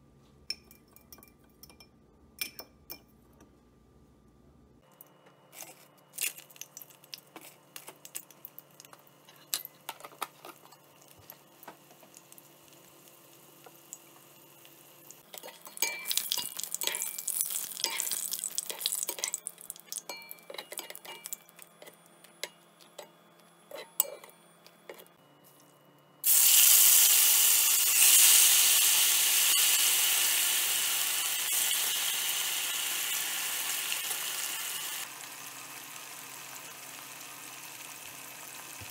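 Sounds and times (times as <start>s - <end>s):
chilies crackling in hot oil: 10.4s - 20.1s, 26.2s - 38.9s
meat sizzling in oil: 12.1s - 20.0s, 26.2s - 38.9s.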